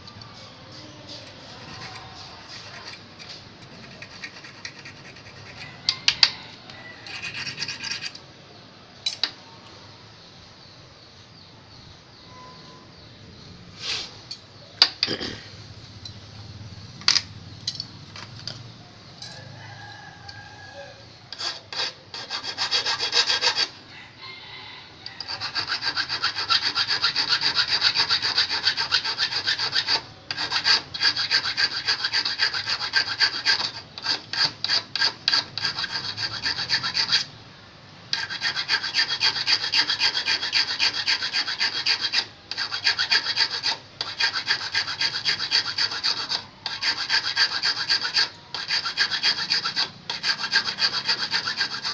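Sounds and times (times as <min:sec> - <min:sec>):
hand file rasping on steel hook: 0:00.7 - 0:06.4, 0:07.0 - 0:08.2, 0:21.3 - 0:23.8, 0:25.2 - 0:37.3, 0:38.1 - 0:51.9.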